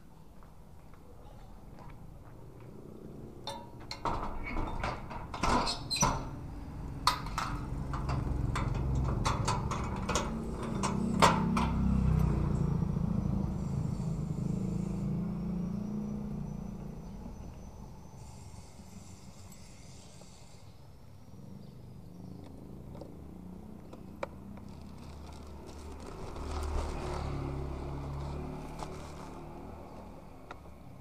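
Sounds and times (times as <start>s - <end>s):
sheet-metal gate clanking: 3.5s - 6.4s.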